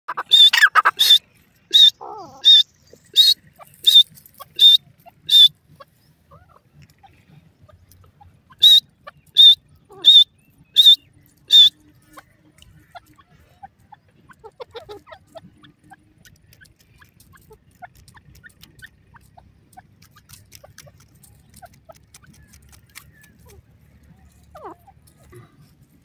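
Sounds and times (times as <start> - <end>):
bird calling shrill notes: 0.1 - 6.5, 8.2 - 12.2.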